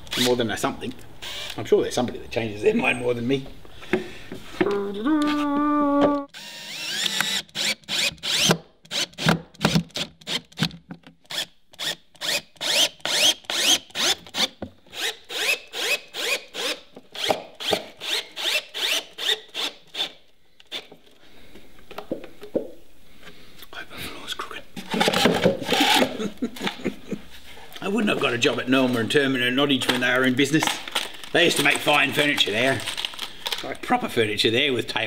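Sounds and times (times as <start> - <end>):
cordless drill driving screws: 1.2 - 1.6, 6.3 - 10.6, 11.3 - 20.9, 24.9 - 26.2.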